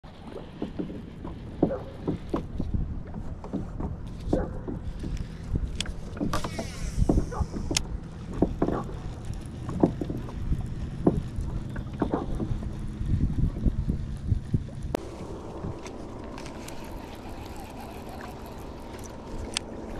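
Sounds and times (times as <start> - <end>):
wind rumbling on microphone: 0.0 - 19.9
small knocks on hull: 0.3 - 9.1, 9.7 - 12.8
fishing reel whirring: 5.2 - 19.9.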